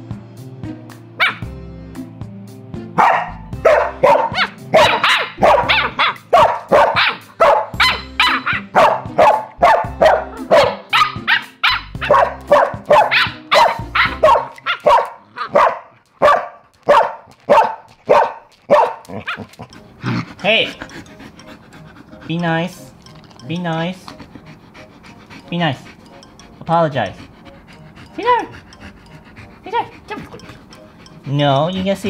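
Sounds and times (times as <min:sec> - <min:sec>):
soft background music: 0:00.0 - 0:32.0
dog barking rapidly: 0:01.2 - 0:01.5, 0:03.0 - 0:19.6.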